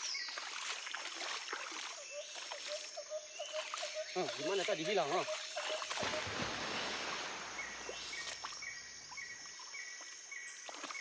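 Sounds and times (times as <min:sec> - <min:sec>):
boots wading in muddy water: 0:00.0 - 0:08.6.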